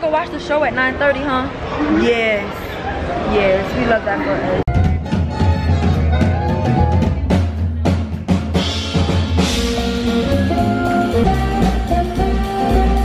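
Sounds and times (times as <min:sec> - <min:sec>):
drum kit playing: 0:04.7 - 0:13.0
upright double bass: 0:04.7 - 0:13.0
sustained melody notes: 0:09.4 - 0:13.0.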